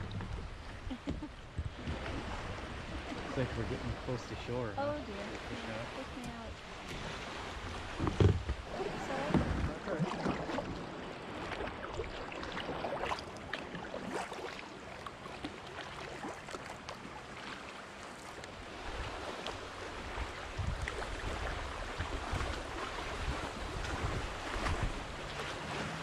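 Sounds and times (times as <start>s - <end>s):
wind rumble on microphone: 0.0s - 13.1s, 18.6s - 26.0s
paddle splashing: 0.0s - 26.0s
water lapping against hull: 0.0s - 26.0s.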